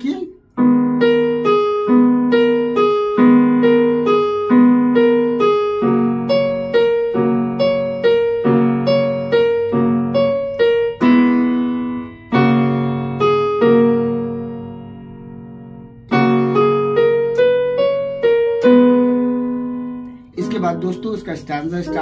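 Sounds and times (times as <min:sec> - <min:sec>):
keyboard left-hand chords: 0:00.0 - 0:22.0
electronic keyboard two-note figure: 0:18.7 - 0:22.0.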